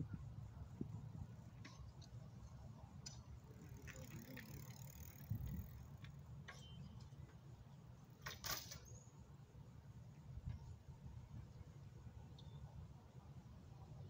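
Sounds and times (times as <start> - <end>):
bike freewheel hub ticking: 1.6 - 7.2.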